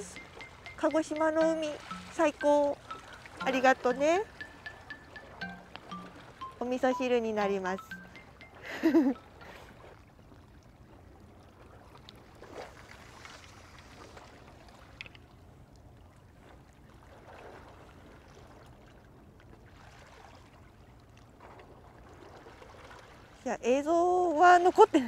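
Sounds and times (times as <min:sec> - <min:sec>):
water lapping against breakwater: 0:09.5 - 0:25.0.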